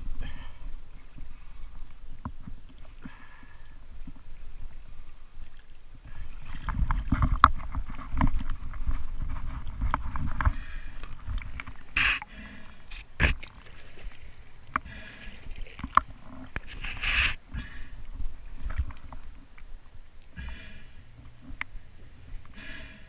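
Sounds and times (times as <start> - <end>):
water sloshing and splashing: 0.0 - 23.0
loud breaths: 14.8 - 15.5, 20.4 - 21.0, 22.5 - 23.0.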